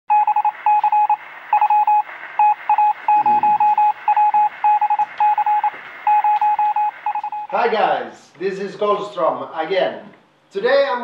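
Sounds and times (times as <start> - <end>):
electronic beep pulses: 0.1 - 7.6.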